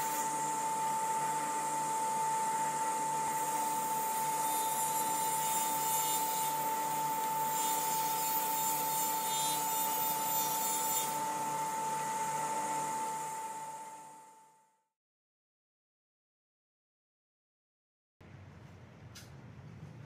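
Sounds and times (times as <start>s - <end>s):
table saw whining: 0.0s - 14.6s.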